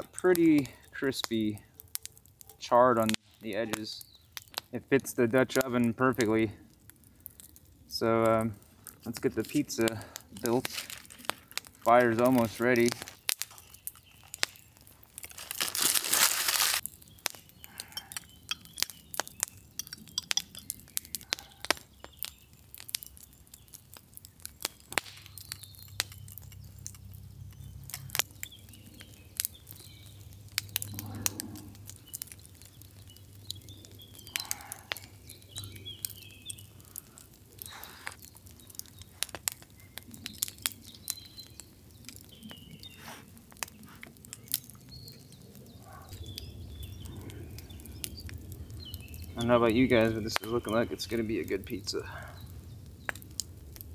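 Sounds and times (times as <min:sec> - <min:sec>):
sharp clicks and crackles: 0:00.0 - 0:53.9
bird chirping: 0:03.2 - 0:04.8, 0:11.9 - 0:14.9, 0:16.8 - 0:53.3.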